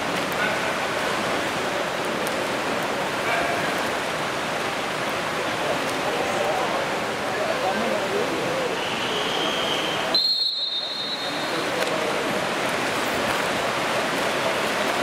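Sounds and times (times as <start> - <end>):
water splashing: 0.0 - 15.0
referee's whistle blast: 8.8 - 11.6.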